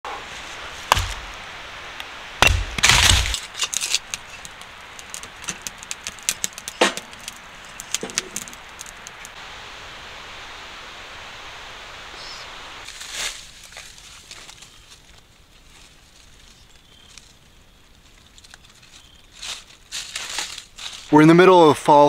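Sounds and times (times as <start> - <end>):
wood fire crackling: 0.1 - 21.4
hatchet chopping firewood: 0.8 - 1.4, 2.4 - 8.9
wood clattering: 2.4 - 9.1.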